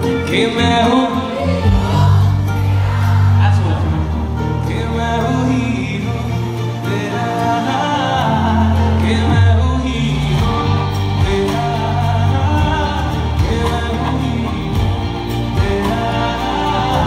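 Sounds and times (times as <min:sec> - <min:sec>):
live band with drums and guitar: 0:00.0 - 0:17.0
man singing through a loudspeaker: 0:00.0 - 0:17.0.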